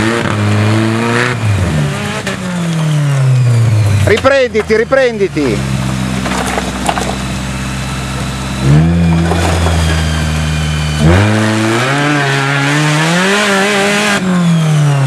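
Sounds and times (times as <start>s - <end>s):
engine revving under load: 0.0s - 15.0s.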